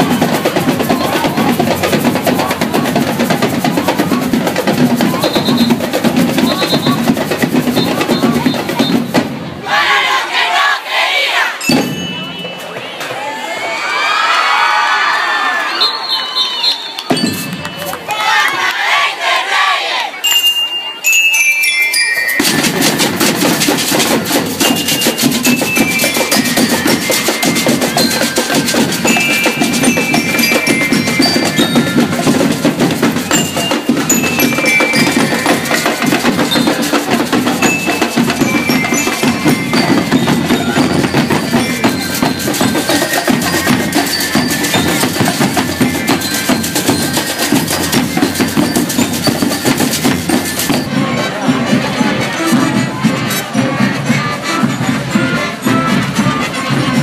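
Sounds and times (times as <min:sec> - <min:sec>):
marching drums beating a cadence: 0:00.0 - 0:13.2, 0:22.4 - 0:57.0
high bell-like melody: 0:11.6 - 0:12.7, 0:17.1 - 0:17.9, 0:20.2 - 0:23.7, 0:24.4 - 0:50.9.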